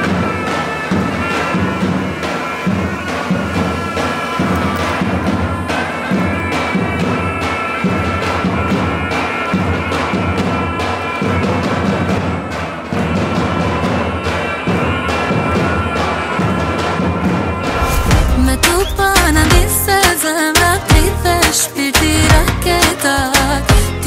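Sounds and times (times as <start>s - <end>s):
large drums beating: 0.0s - 23.0s
shrill reedy wind melody: 17.4s - 20.9s.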